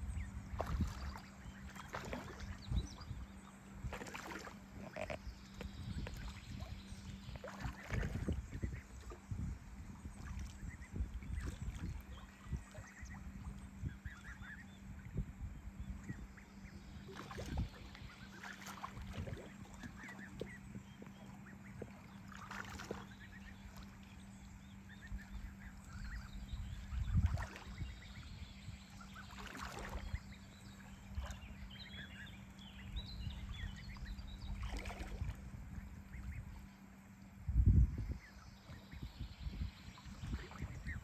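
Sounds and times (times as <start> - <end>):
steady low hum: 0.0 - 41.0
ducks calling: 16.2 - 23.9.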